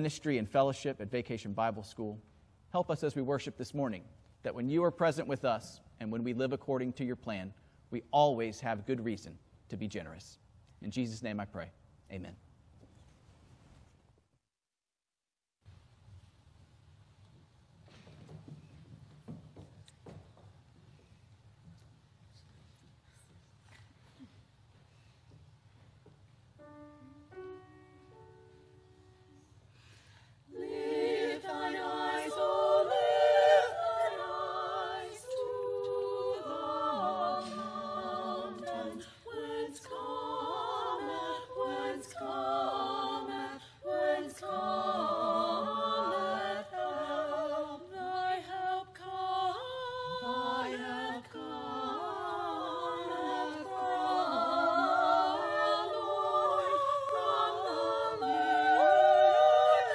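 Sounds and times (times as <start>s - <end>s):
choir singing: 30.5s - 59.9s.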